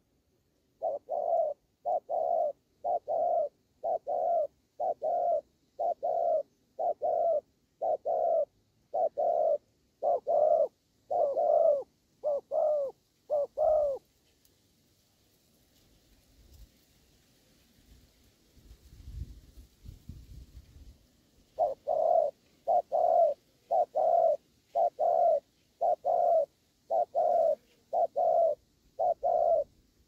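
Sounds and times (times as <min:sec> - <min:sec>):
dove cooing: 0:00.7 - 0:14.0, 0:21.5 - 0:29.8.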